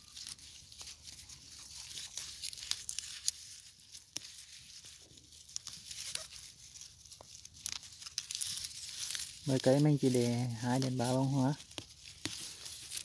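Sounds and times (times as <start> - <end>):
leaves rustling: 0.0 - 13.0
small crackles and snaps: 0.0 - 13.0.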